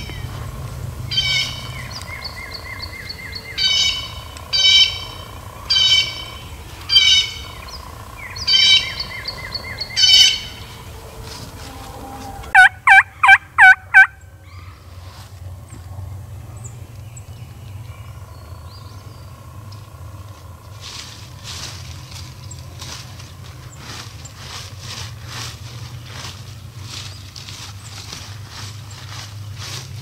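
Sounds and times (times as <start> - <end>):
birds calling: 0.0 - 30.0
turkey yelps: 12.5 - 14.8.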